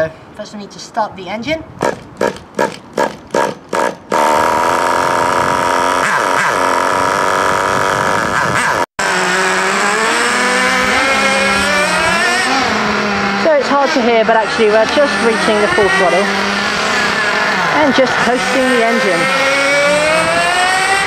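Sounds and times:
engine being cranked: 1.8s - 8.8s
small nitro engine running: 3.0s - 11.6s.

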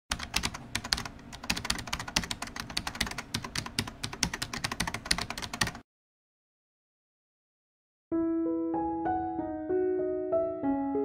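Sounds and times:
computer keyboard typing: 0.1s - 5.8s.

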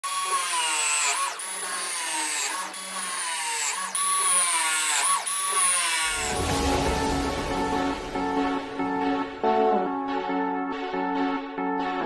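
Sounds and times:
power tool motor whining: 0.0s - 6.4s.

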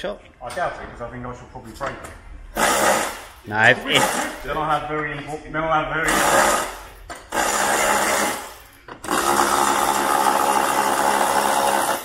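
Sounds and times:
ratchet whirring: 6.1s - 12.0s.

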